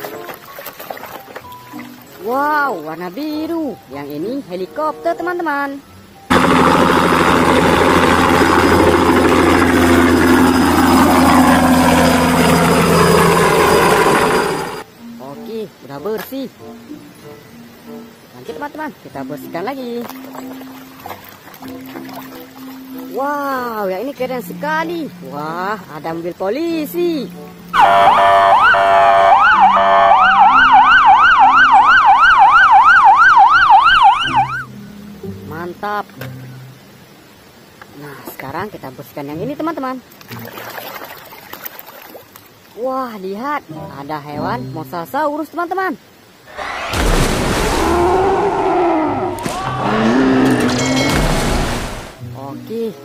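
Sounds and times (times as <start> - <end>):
helicopter rotor drone: 6.3 - 14.9
faint high whine: 6.3 - 15.3
police car siren: 27.8 - 34.7.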